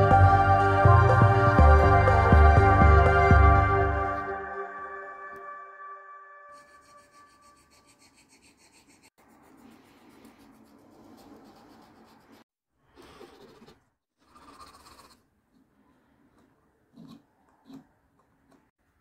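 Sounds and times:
file rasping on wood: 0:06.6 - 0:12.4.

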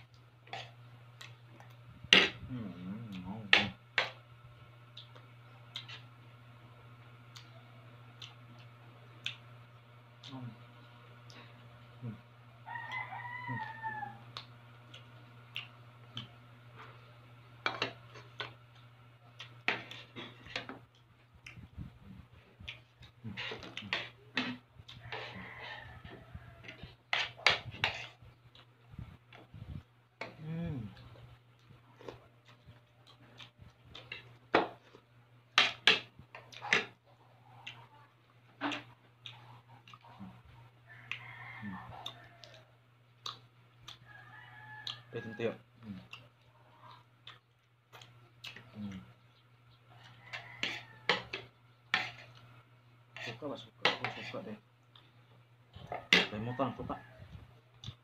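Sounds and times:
steady low hum: 0:00.0 - 0:44.1
chewing: 0:14.3 - 0:16.8, 0:22.5 - 0:25.8, 0:31.0 - 0:35.0, 0:36.3 - 0:38.0, 0:38.6 - 0:45.1, 0:45.8 - 0:52.5, 0:54.0 - 0:56.4, 0:57.7 - 0:58.0.

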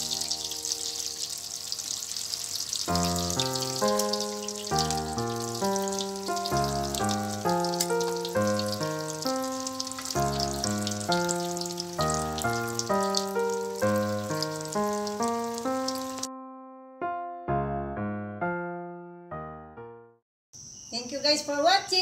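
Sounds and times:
oil sizzling in wok: 0:00.0 - 0:16.3
keyboard background music: 0:00.0 - 0:20.2.

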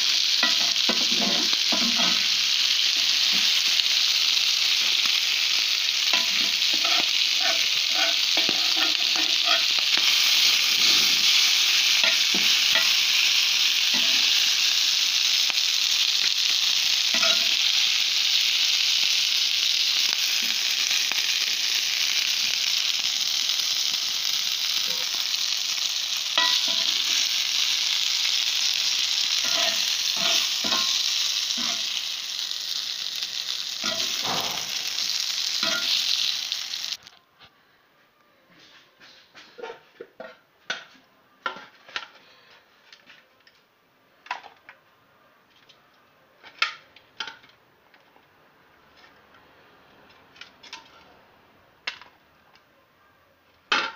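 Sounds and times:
meat sizzling in hot oil: 0:00.0 - 0:37.1.

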